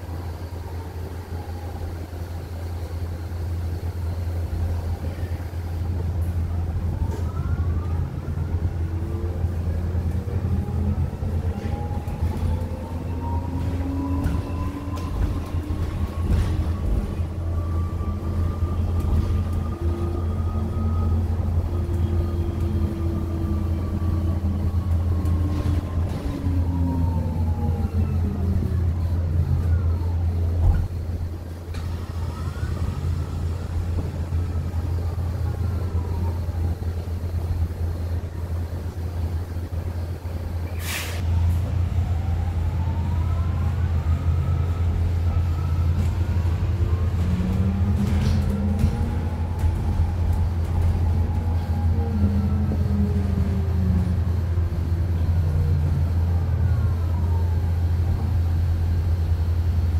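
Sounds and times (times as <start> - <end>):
electric bus motor whining: 0.0 - 59.9.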